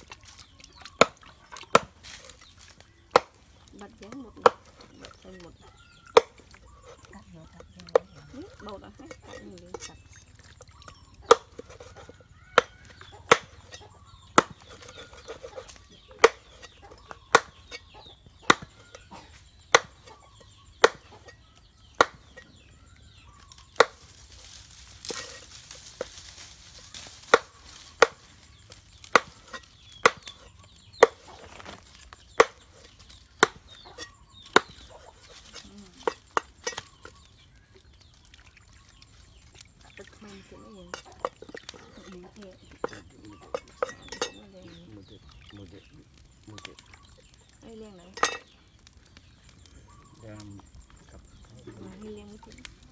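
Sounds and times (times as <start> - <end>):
knife chopping on wooden block: 13.3 - 13.6, 14.3 - 16.7, 17.3 - 17.6, 18.5 - 18.7, 19.8 - 20.0, 22.0 - 22.2.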